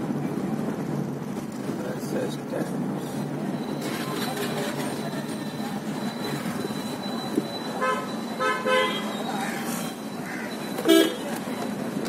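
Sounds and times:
road traffic inside a car: 0.0 - 12.0
vehicle horn tooting: 7.8 - 9.2, 10.2 - 11.3.

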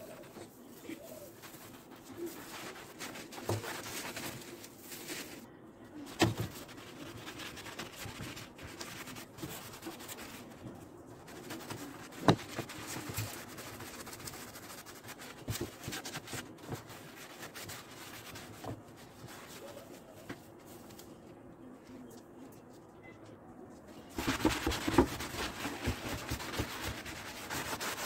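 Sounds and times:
sponge scrubbing wood: 24.2 - 28.0.

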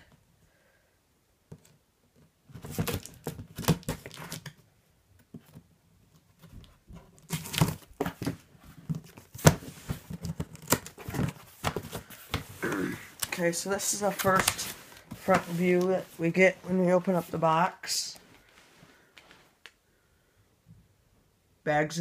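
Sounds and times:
cardboard flaps rustling: 2.4 - 4.6, 5.3 - 17.4.

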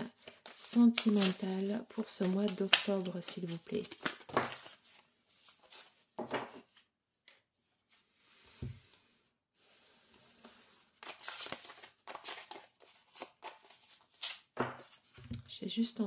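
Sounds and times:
deck of cards shuffling: 0.0 - 5.9.

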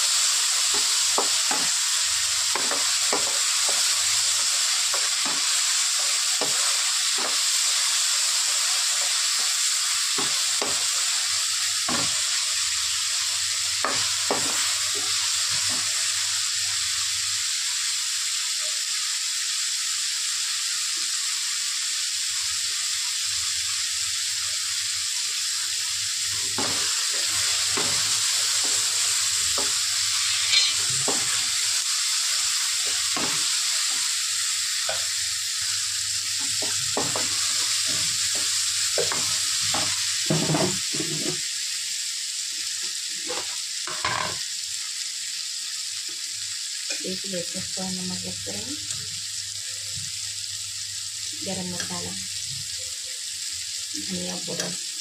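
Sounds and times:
vegetables sizzling in hot oil: 0.0 - 55.0
wooden spoon scraping a pan: 29.6 - 31.6.

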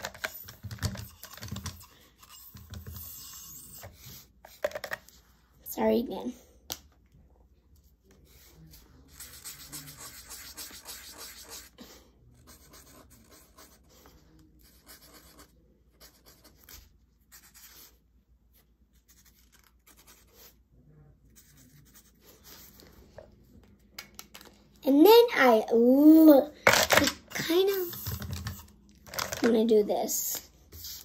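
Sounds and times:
marker scratching on paper: 0.0 - 4.8, 8.3 - 11.8, 12.4 - 20.6, 21.3 - 22.9, 30.7 - 31.0.

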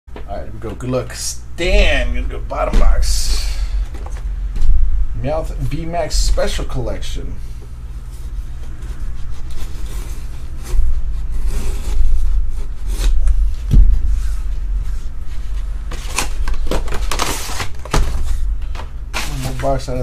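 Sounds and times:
steady low hum: 0.1 - 20.0
cardboard box rustling and scraping: 8.0 - 18.4.

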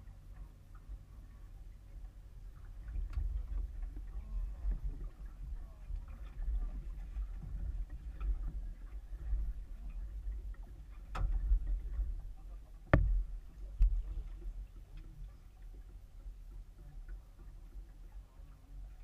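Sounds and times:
muffled rumble of wind and water: 0.0 - 19.0
sharp knocks on boat: 11.1 - 12.0, 12.8 - 14.1.

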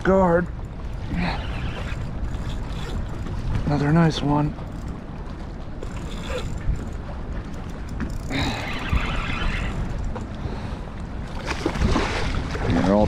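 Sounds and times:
fishing reel drag buzzing: 1.1 - 3.3, 5.8 - 7.0, 7.6 - 10.1.

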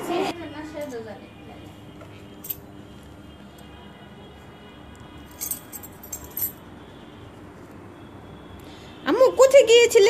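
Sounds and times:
light metallic clinks: 5.3 - 6.6.

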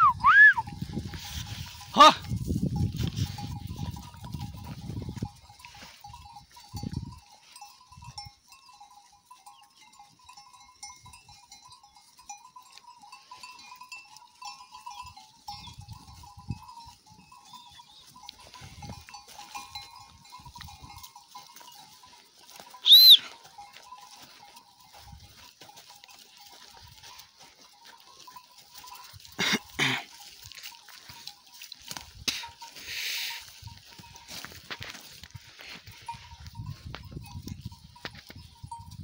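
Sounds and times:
high whistle: 0.0 - 0.7, 22.8 - 23.3.

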